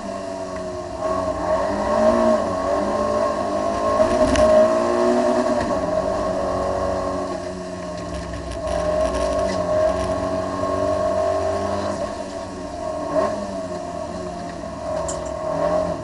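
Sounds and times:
car engine running hard: 0.0s - 16.0s.

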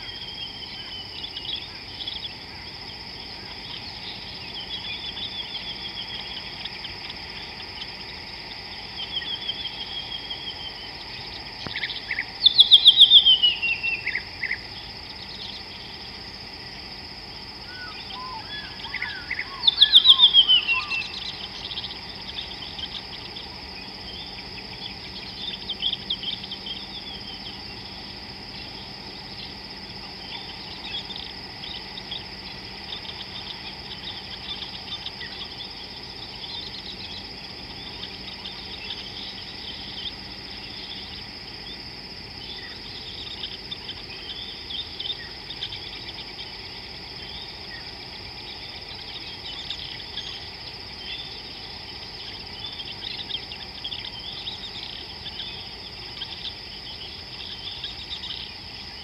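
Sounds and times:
high-pitched insect drone: 0.0s - 59.0s
bird chirps: 11.6s - 14.6s, 17.6s - 27.9s.

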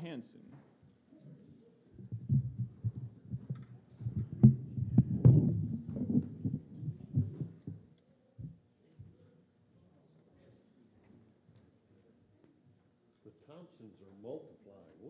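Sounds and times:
thumps and knocks of sitting down: 2.0s - 7.8s.

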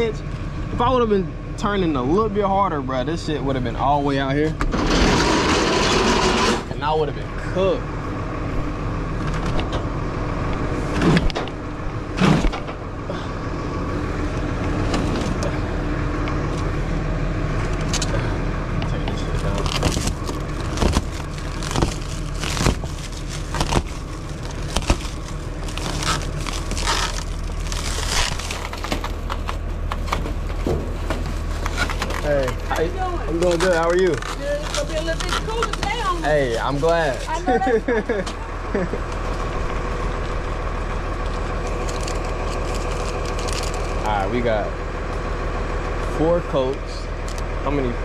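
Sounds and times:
truck engine running: 0.0s - 48.0s
knocks clanks and rattles: 10.9s - 12.9s.

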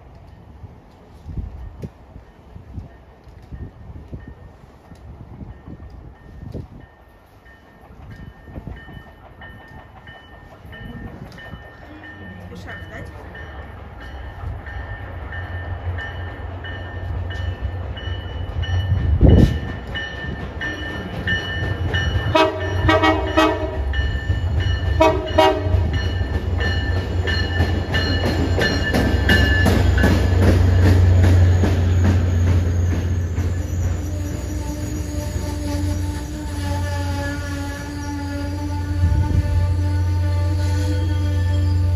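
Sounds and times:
train rumble: 0.0s - 41.9s
train horn blasts: 22.2s - 24.0s, 25.0s - 26.0s, 33.9s - 41.9s.

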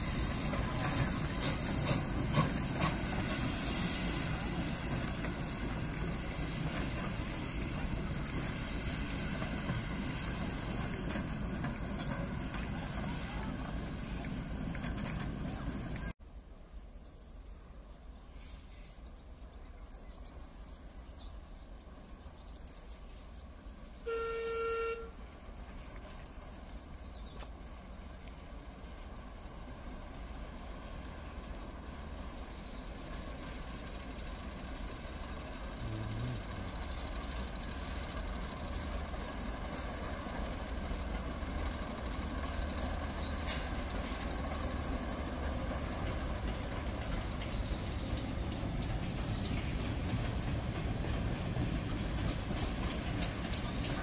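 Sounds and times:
diesel engine: 0.0s - 16.2s, 29.7s - 54.0s
train horn: 24.0s - 25.2s.

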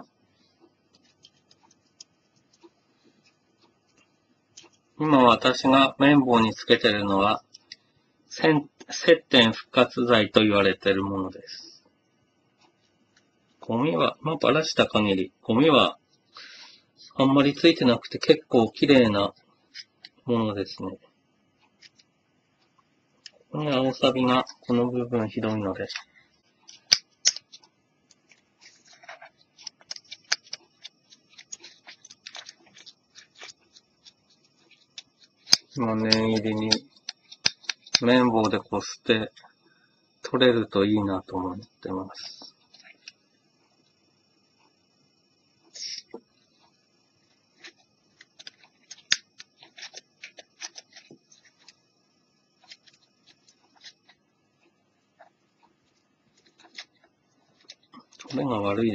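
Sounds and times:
cotton swab scrubbing circuit board: 0.0s - 5.0s, 17.2s - 39.6s, 40.4s - 44.8s, 45.6s - 58.9s
cotton swab scrubbing metal: 47.3s - 51.8s.

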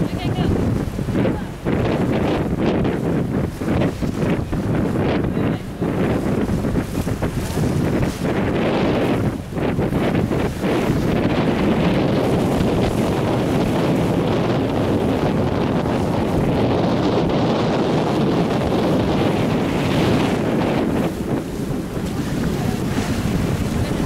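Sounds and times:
choppy sea washing around boat: 0.0s - 24.0s
wind on microphone: 0.0s - 24.0s.

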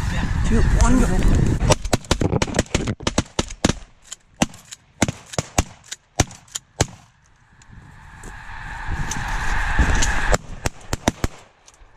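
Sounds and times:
shotguns firing: 1.7s - 7.1s, 10.6s - 11.5s.

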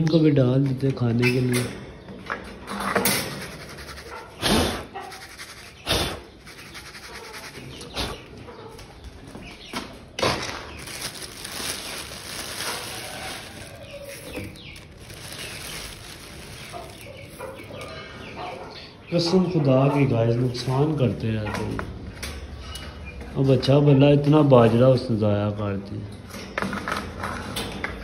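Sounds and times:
birds calling: 1.1s - 20.6s
steady rustle: 5.0s - 8.2s.

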